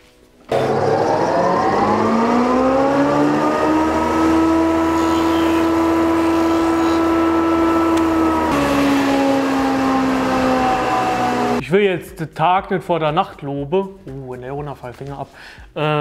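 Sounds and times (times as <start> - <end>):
thickness planer motor humming: 0.5 - 11.6.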